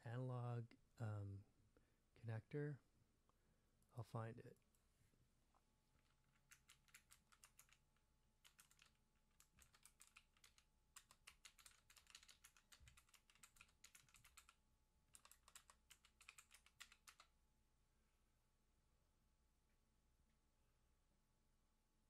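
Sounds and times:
typing on computer keyboard: 6.0 - 7.8, 8.4 - 17.3.

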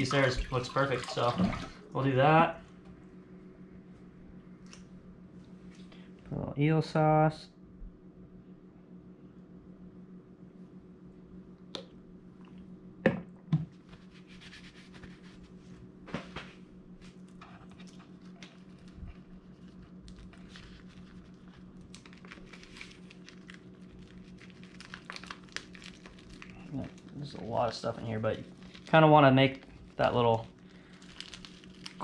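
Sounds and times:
steady low hum: 0.0 - 32.0
paper crinkling and rustling: 13.8 - 32.0.

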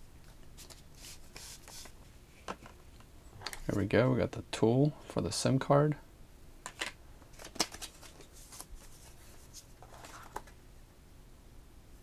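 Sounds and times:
paper rustling: 0.2 - 2.0, 7.3 - 10.5.

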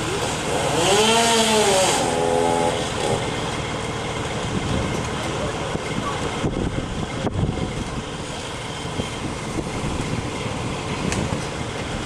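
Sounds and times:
strong wind buffeting microphone: 4.4 - 12.0.

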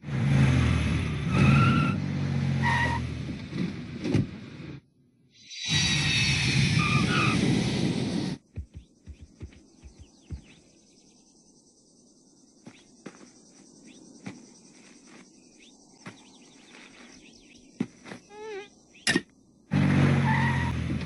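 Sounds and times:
insect and cricket chorus: 5.3 - 19.7
wavering insect buzz: 8.4 - 19.0.

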